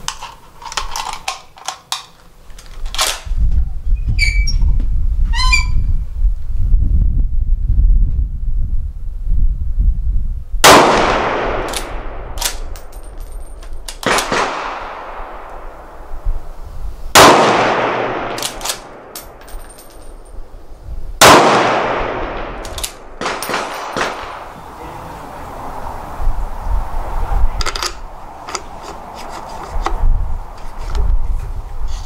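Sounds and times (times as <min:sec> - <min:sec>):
rifle shots echoing: 0:10.6 - 0:16.2, 0:17.1 - 0:20.5, 0:21.2 - 0:24.6
rifle bolt clicking: 0:11.7 - 0:14.4, 0:18.3 - 0:20.0, 0:22.6 - 0:23.7
spent brass clinking: 0:18.3 - 0:20.5.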